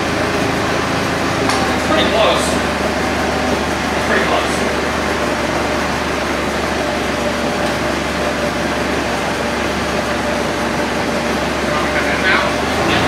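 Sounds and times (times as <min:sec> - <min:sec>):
machine noise with faint hum: 0:00.0 - 0:13.0.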